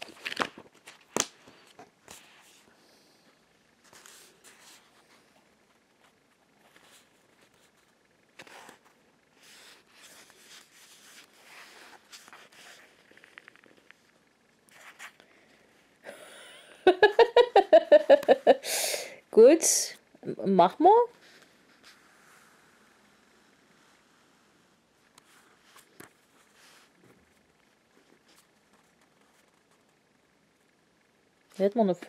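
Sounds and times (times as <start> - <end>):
paper rustling and scraping: 8.4 - 14.0.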